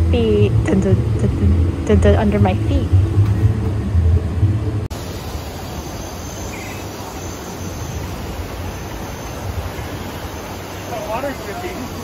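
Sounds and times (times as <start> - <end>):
low rumble: 0.0 - 5.0
water rushing over rocks: 4.9 - 12.0.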